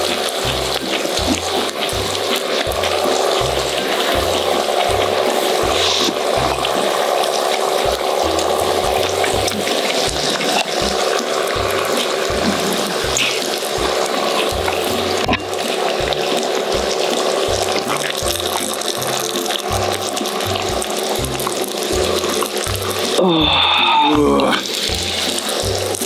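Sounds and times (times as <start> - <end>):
background music with pulsing bass: 0.0 - 7.0, 7.6 - 26.0
meat sizzling on a griddle: 0.0 - 26.0.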